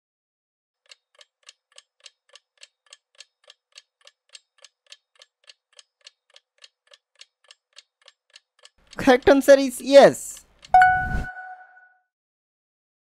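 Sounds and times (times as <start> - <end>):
countdown timer ticking: 10.7 - 11.8.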